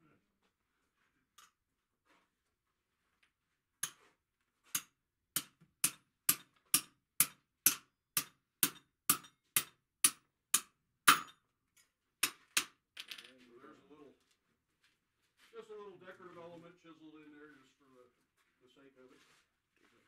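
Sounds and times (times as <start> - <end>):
hammer striking chisel on anvil: 4.7 - 11.4.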